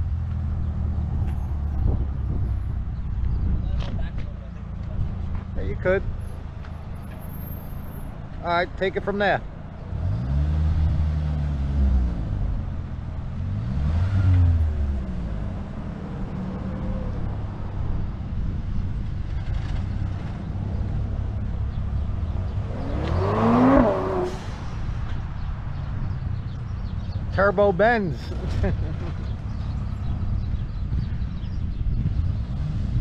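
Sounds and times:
car engine revving: 9.8 - 17.6, 19.0 - 25.2.

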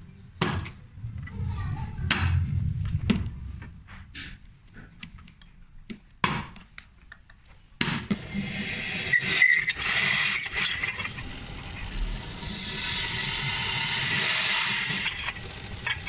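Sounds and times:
drill press drilling into steel: 8.2 - 16.0.

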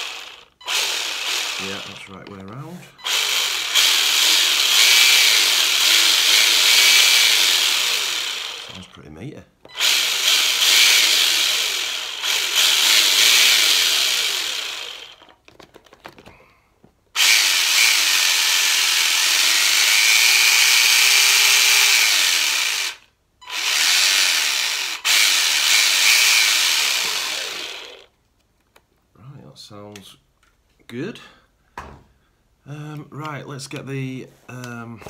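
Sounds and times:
electric motor and gears whirring: 0.0 - 8.8, 9.7 - 15.4, 17.2 - 28.1.

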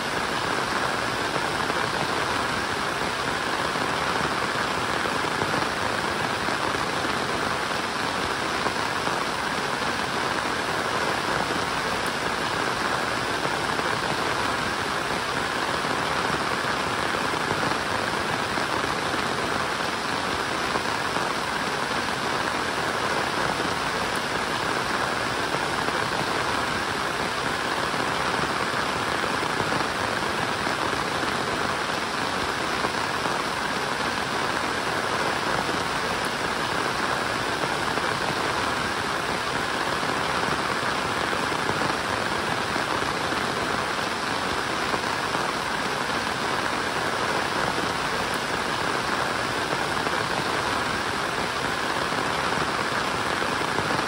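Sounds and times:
steady rainfall: 0.0 - 54.0.

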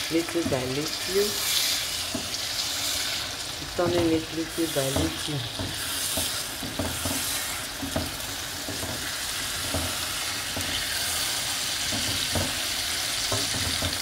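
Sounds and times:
food sizzling in a pan: 0.0 - 14.0
spatula scraping a pan: 0.2 - 14.0.

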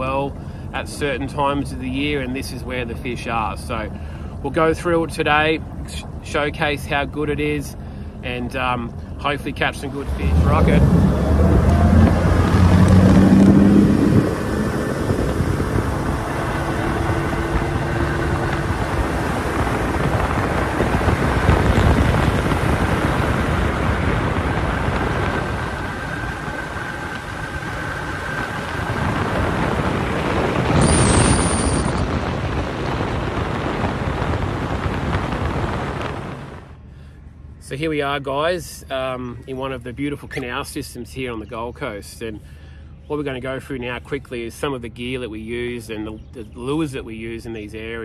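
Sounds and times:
outboard motor whining: 9.8 - 37.1
wind on microphone: 10.0 - 36.7.

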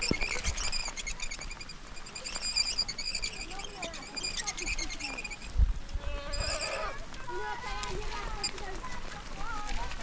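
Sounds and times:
high-pitched chirping: 0.0 - 5.5.

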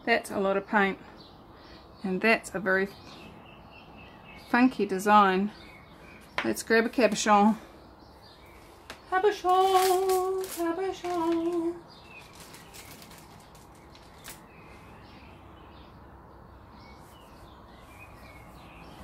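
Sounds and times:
rustling: 8.4 - 14.9.

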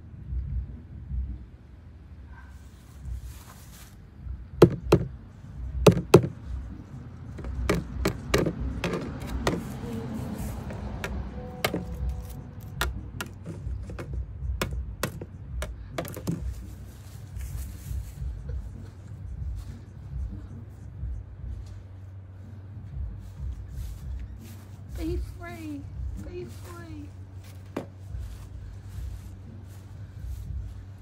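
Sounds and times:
taps on plastic tub: 4.6 - 5.1, 5.9 - 6.4, 7.4 - 9.6, 12.8 - 16.4.

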